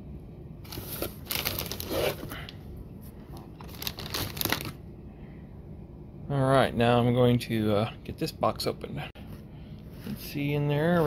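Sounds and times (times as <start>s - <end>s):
cardboard box rustling: 0.7s - 2.4s.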